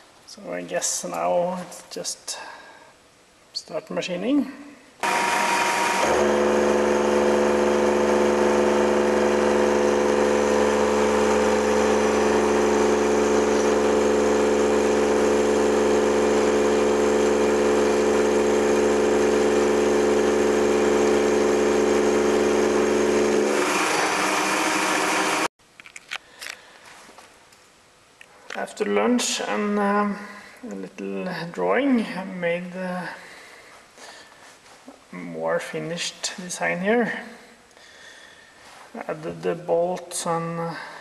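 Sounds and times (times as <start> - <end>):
milling machine whine: 5.0 - 25.5.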